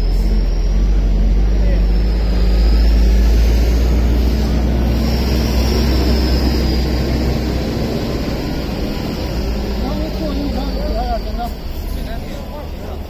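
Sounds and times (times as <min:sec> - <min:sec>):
car engine idling: 0:03.8 - 0:13.0.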